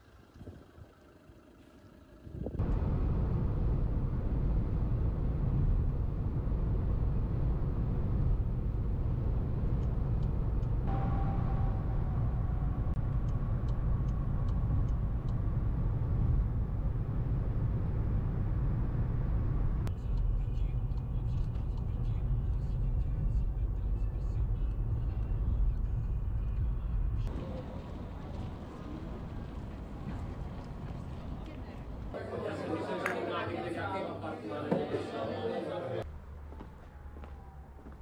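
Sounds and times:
engine and road rumble: 0.0 - 32.2, 36.0 - 38.0
higher hum: 2.4 - 19.9.

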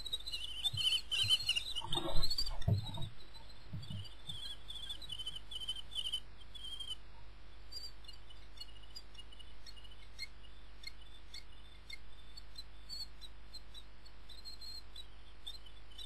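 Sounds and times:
bird chicks calling: 0.0 - 7.0.

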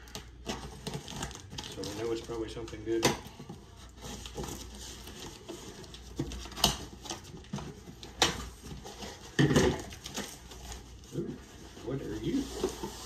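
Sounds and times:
packing tape pulled and scraped: 0.0 - 3.0.

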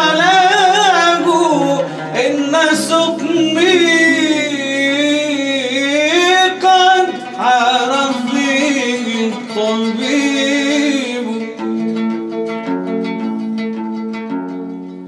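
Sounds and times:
man singing devotional song: 0.0 - 11.6
steady instrument notes: 0.0 - 15.0.

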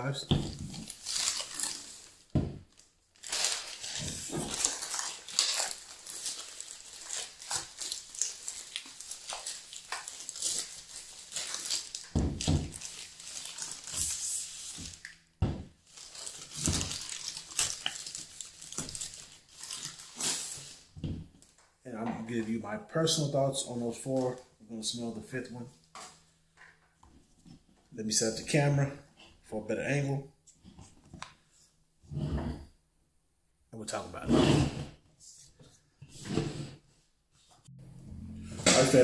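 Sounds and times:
plastic bag crinkling: 0.5 - 15.2, 15.8 - 20.9.

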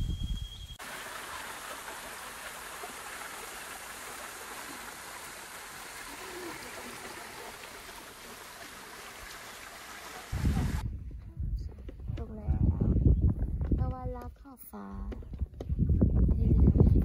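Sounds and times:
stream rushing over rock: 0.8 - 10.8
gusty rumble: 10.3 - 14.2, 15.6 - 17.0.

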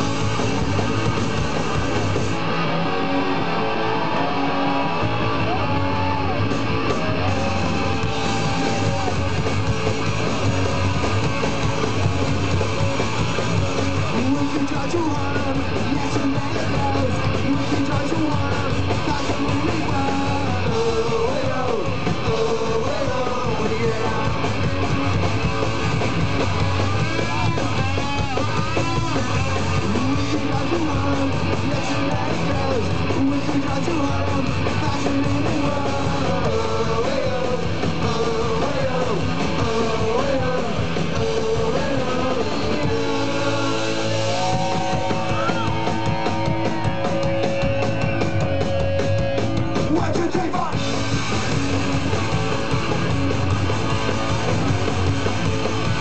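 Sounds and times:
punk rock band playing live: 0.0 - 56.0
person singing: 14.0 - 24.5, 27.2 - 49.2.

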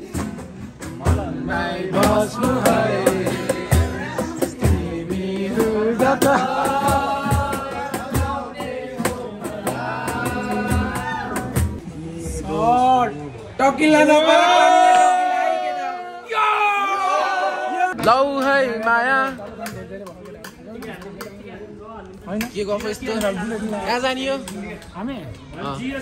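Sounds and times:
men singing: 1.0 - 12.5.

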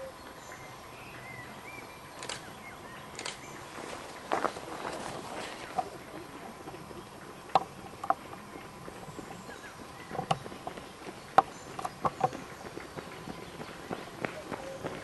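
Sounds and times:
footsteps on gravel trail: 3.6 - 15.0.

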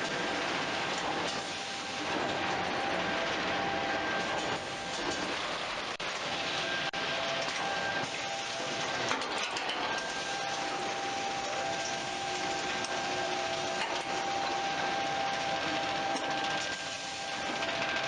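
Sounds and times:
machinery running: 0.0 - 18.0.

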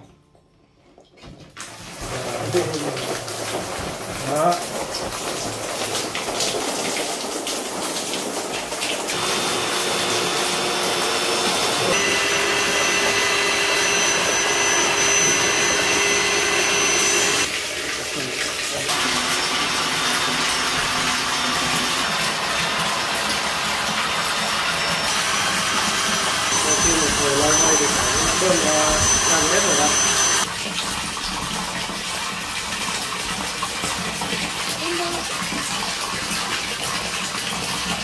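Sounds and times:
water pouring and splashing into a pool: 1.0 - 11.0, 17.4 - 25.1, 30.4 - 38.0
electric motor whining: 9.1 - 17.5, 18.9 - 30.5.

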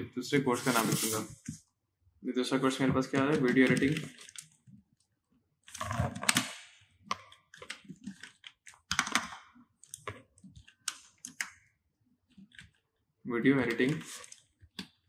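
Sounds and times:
keyboard keys clicking: 7.1 - 11.5.

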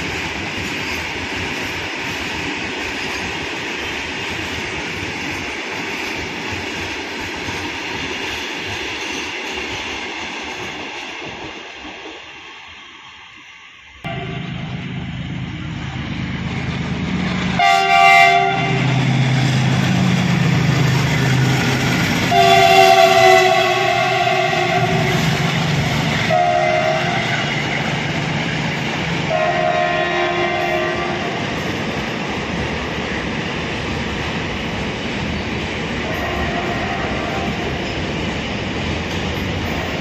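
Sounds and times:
train wheels rumbling on rails: 0.0 - 13.0, 14.0 - 40.0
locomotive horn blasts: 14.1 - 14.8, 17.6 - 19.0, 22.3 - 25.2, 26.3 - 27.4, 29.3 - 31.4, 36.1 - 37.6.

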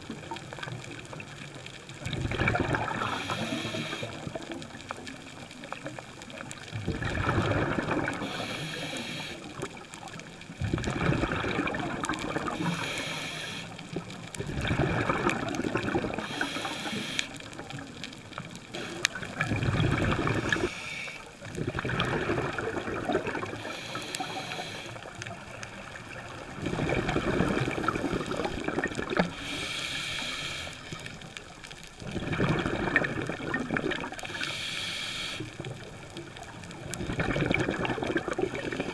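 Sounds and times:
diver exhaling bubbles underwater: 2.1 - 4.8, 6.7 - 9.8, 10.6 - 13.1, 13.9 - 17.0, 18.8 - 20.8, 21.5 - 24.7, 26.1 - 29.4, 32.0 - 34.3, 36.9 - 38.9
regulator hissing: 12.6 - 13.8, 16.3 - 17.3, 23.6 - 25.0.

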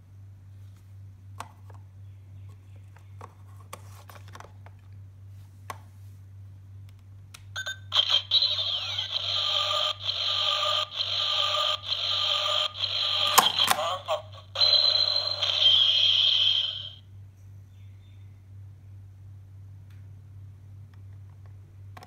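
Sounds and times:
electronic toy standby ringing: 10.5 - 17.0.

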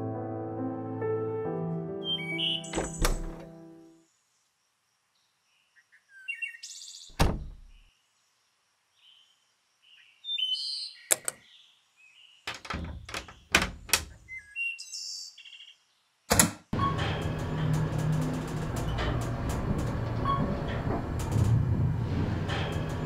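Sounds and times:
small birds chirping: 2.1 - 13.5, 14.1 - 16.3
wooden door shutting: 2.6 - 3.6, 7.1 - 7.8, 12.5 - 14.4, 16.3 - 23.0.

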